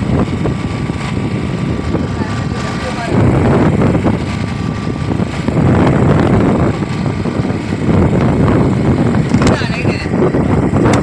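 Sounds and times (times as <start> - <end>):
boat engine rumbling: 0.0 - 11.0.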